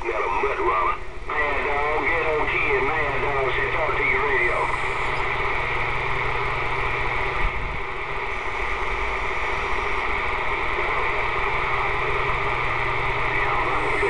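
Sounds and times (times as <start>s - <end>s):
low hum: 0.0s - 14.0s
radio static hiss: 0.0s - 14.0s.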